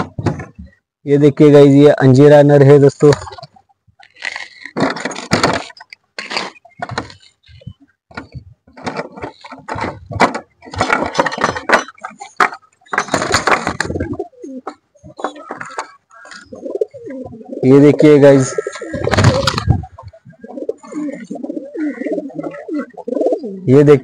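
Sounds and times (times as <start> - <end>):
pigeons cooing: 6.4 - 24.0.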